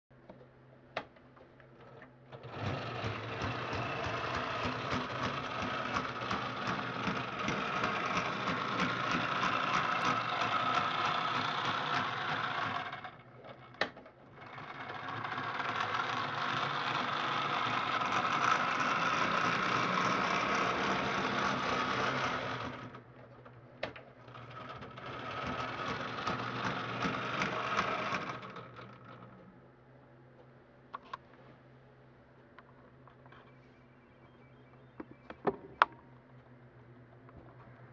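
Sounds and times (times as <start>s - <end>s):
model train motor whirring: 2.4s - 13.2s, 14.4s - 23.0s, 24.3s - 29.3s
wheels clicking on track: 2.5s - 13.1s, 24.5s - 29.3s.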